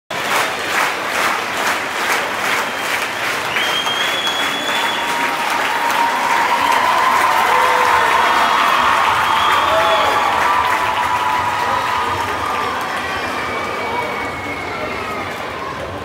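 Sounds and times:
audience applauding: 0:00.1 - 0:15.6
high-pitched cheering shouts: 0:04.2 - 0:16.0.

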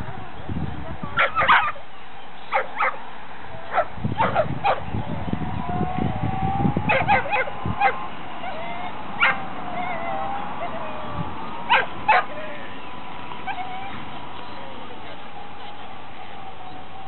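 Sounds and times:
dogs yelping and barking: 0:01.2 - 0:01.8, 0:02.5 - 0:03.0, 0:03.6 - 0:04.9, 0:06.8 - 0:12.8, 0:13.4 - 0:14.2.

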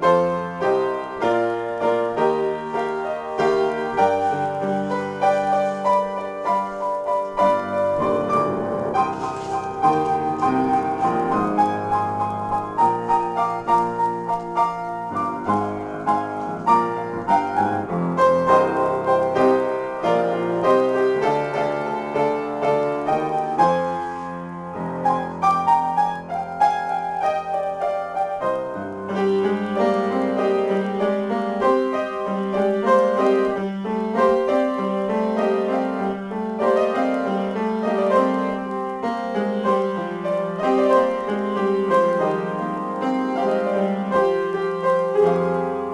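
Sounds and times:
solo piano improvisation: 0:00.0 - 0:45.9.

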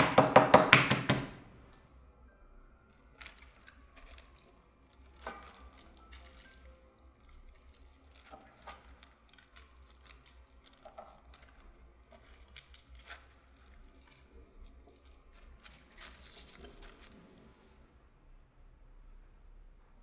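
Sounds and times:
cabbage leaves rustling in bowl: 0:03.0 - 0:17.6.

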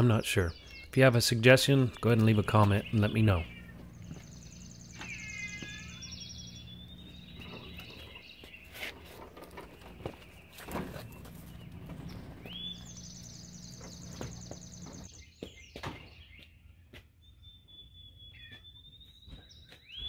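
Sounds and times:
birds singing: 0:00.0 - 0:20.0
footsteps on concrete: 0:01.7 - 0:06.2, 0:13.8 - 0:17.2, 0:18.4 - 0:20.0.

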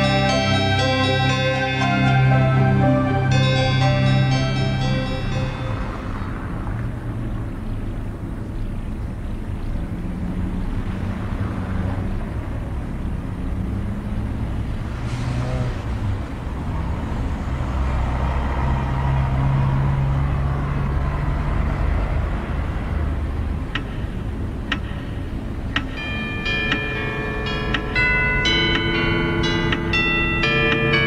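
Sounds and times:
clock chimes: 0:00.0 - 0:06.6, 0:25.8 - 0:31.0
low rumbling drone: 0:00.0 - 0:08.0, 0:21.0 - 0:31.0
clock ticks: 0:23.7 - 0:31.0.

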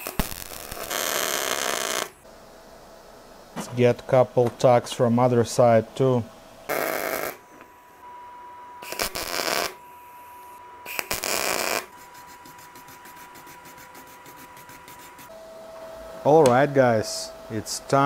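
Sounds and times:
welding crackle: 0:00.0 - 0:02.2, 0:08.8 - 0:09.8, 0:10.9 - 0:11.9.

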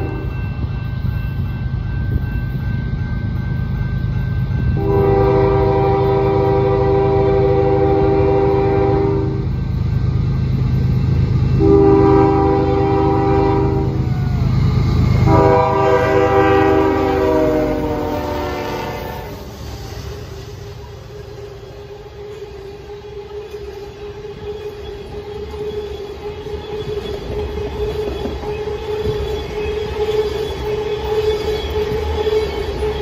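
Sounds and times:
locomotive air horn blasts: 0:00.0 - 0:00.4, 0:04.8 - 0:09.5, 0:11.6 - 0:14.0, 0:15.2 - 0:19.5.

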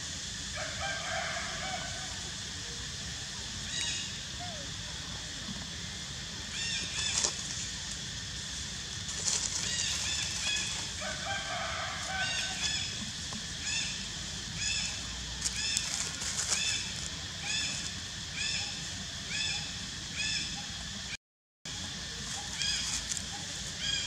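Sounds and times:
high arching animal calls: 0:03.6 - 0:05.3, 0:08.8 - 0:20.7.

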